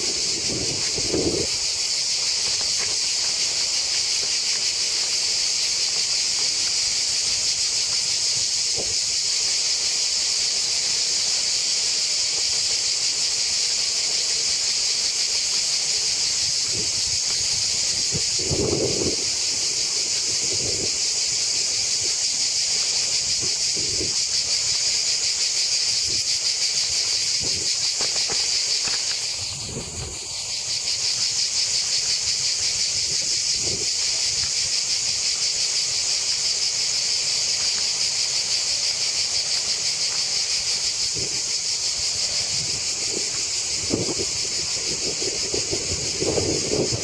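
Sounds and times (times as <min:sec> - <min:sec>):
cicadas buzzing: 0:00.0 - 0:47.0.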